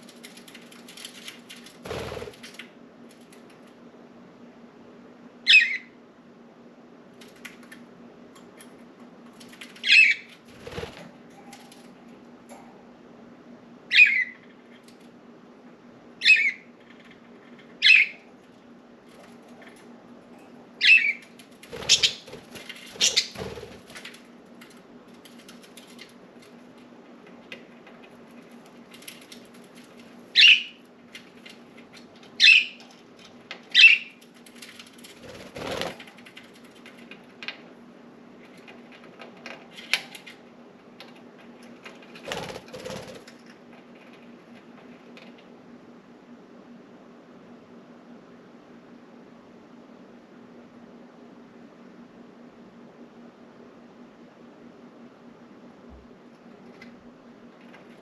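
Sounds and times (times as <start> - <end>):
low steady hum: 0.0 - 58.0
budgerigars chirping: 20.8 - 21.2, 21.9 - 22.3, 23.0 - 23.4.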